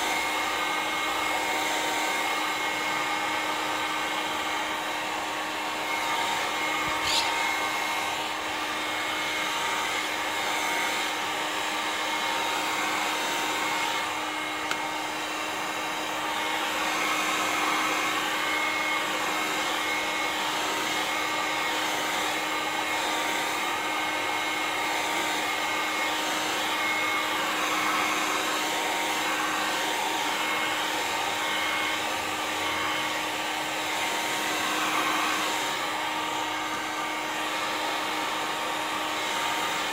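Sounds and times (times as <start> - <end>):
heat gun blowing air with whine: 0.0 - 39.9
click: 14.6 - 14.8.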